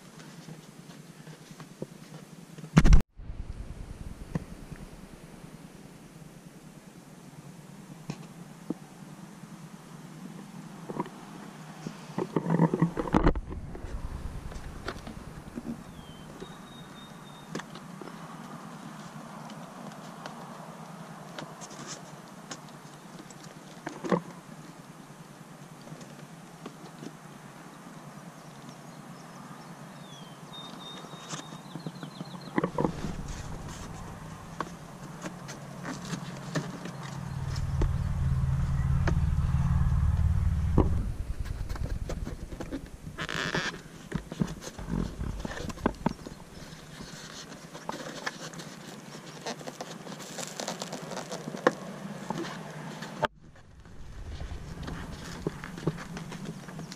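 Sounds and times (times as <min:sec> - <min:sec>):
loud low rumble: 0:03.1 - 0:06.2, 0:13.0 - 0:16.7, 0:32.7 - 0:47.2, 0:53.3 - 0:56.9.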